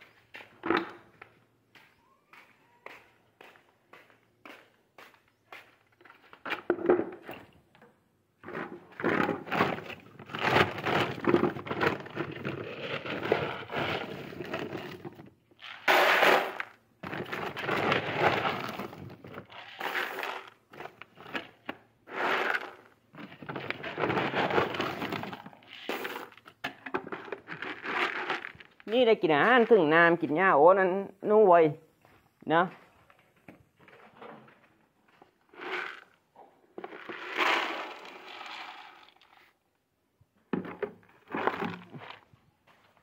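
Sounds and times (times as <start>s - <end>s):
dry feed pouring and rattling: 15.6s - 19.0s, 19.6s - 20.5s, 22.1s - 26.3s, 36.8s - 39.5s.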